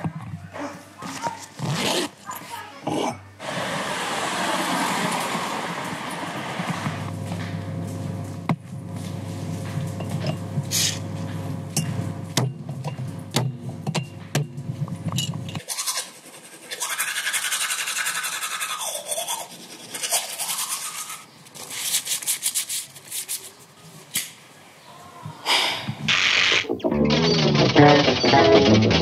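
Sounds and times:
steady low hum: 0:05.4 - 0:15.6
teeth being brushed: 0:15.6 - 0:23.6.

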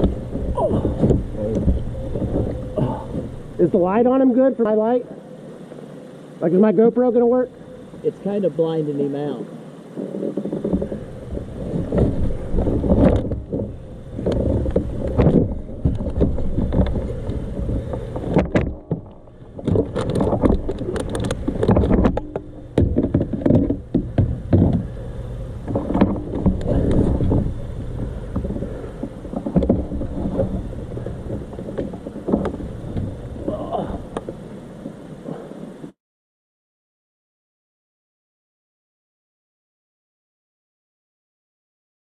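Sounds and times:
sharp clicks and knocks: 0:00.0 - 0:03.4, 0:10.0 - 0:33.4
knocking and rubbing against kayak hull: 0:00.0 - 0:03.8, 0:10.0 - 0:35.8.

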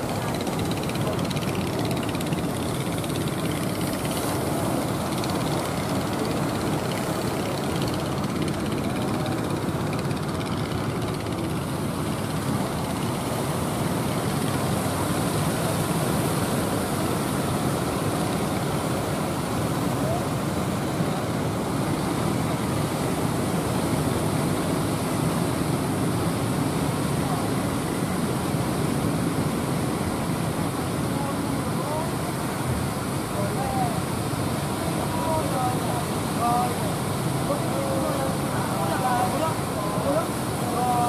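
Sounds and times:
boat engines: 0:00.0 - 0:41.0
breaking surf: 0:00.0 - 0:41.0
wind: 0:00.0 - 0:41.0.

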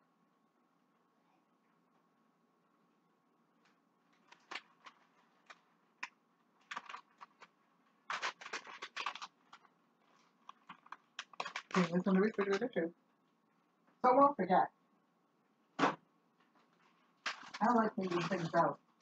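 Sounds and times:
paper crinkling: 0:03.6 - 0:12.8, 0:16.4 - 0:19.0.

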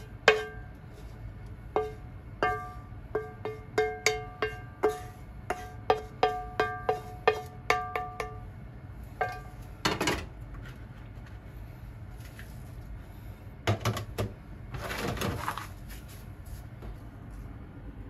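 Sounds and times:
frying pan and spatula clatter: 0:01.8 - 0:08.5.

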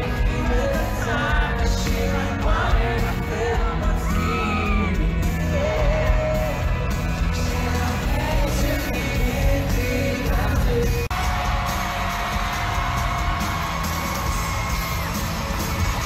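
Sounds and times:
man singing: 0:00.0 - 0:13.0
pop-rock band playing live: 0:00.0 - 0:16.0
fans yelling: 0:03.7 - 0:09.0, 0:10.8 - 0:16.0
crowd cheering: 0:11.1 - 0:16.0.

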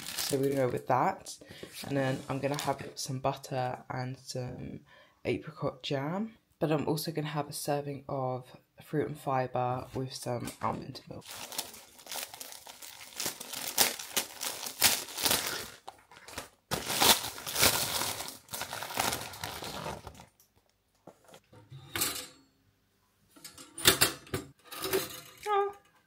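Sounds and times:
plastic bag crinkling: 0:00.0 - 0:00.8, 0:11.2 - 0:20.4.

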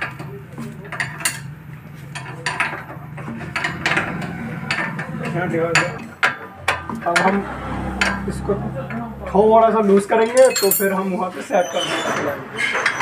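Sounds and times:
metal hand tools clinking: 0:10.3 - 0:11.1.

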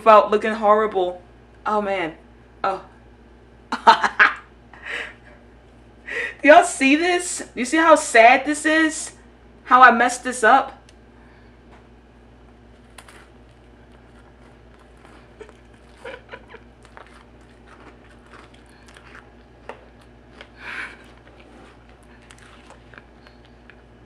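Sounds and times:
person chewing sticky food: 0:12.7 - 0:24.0.

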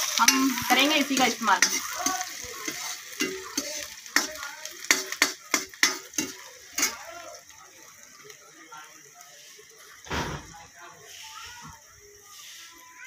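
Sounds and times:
metal spatula scraping a pan: 0:00.0 - 0:07.1
vegetables sizzling in oil: 0:00.0 - 0:13.0.

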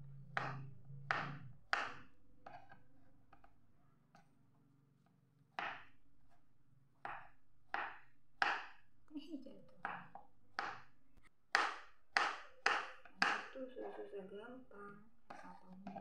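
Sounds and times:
knife chopping on plastic board: 0:00.4 - 0:03.5, 0:05.6 - 0:08.9, 0:09.8 - 0:13.5, 0:15.3 - 0:16.0.

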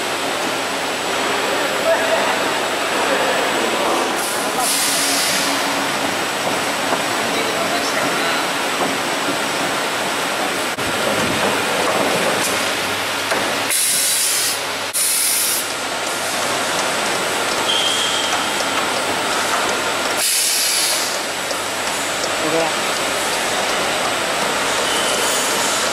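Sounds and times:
short bursts of high hiss: 0:13.7 - 0:15.7, 0:20.2 - 0:21.3.

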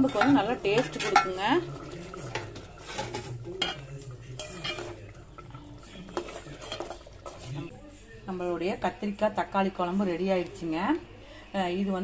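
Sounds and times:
ladle clinking on pot rim: 0:00.0 - 0:07.6
ladle scraping a pot: 0:00.0 - 0:07.7.

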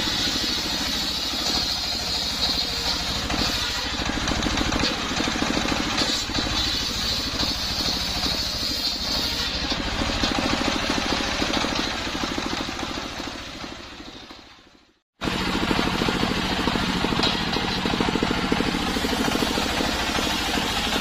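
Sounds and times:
circular saw cutting wood: 0:00.0 - 0:21.0
stationary engine running: 0:00.0 - 0:21.0.

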